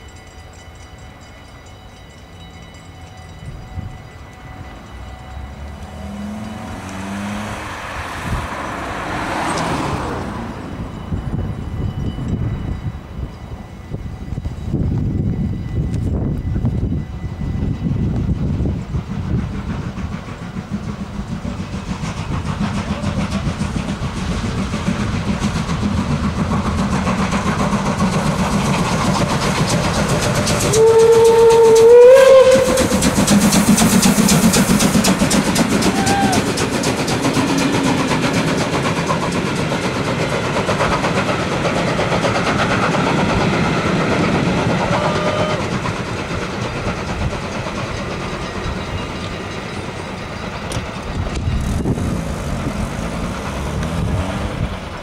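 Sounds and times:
passenger coaches rolling by: 0.0 - 55.0
steam locomotive passing: 0.0 - 55.0
steam whistle blast: 30.6 - 34.9, 35.7 - 36.6, 44.8 - 45.8.

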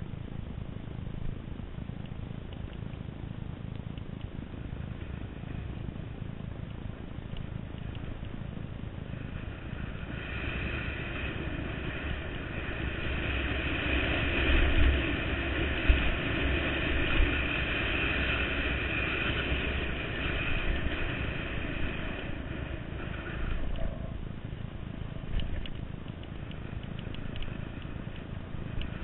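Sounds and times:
dirt bike engine running: 0.0 - 29.0
low rumble from bumps: 0.0 - 29.0
wind on microphone: 7.7 - 29.0.

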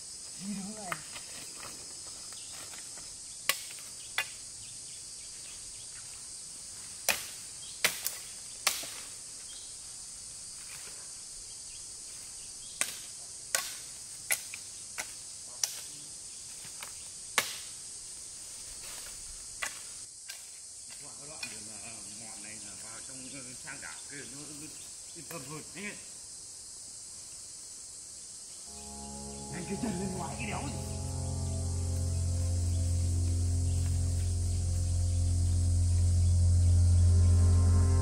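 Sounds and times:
high insect buzz: 28.7 - 38.0.

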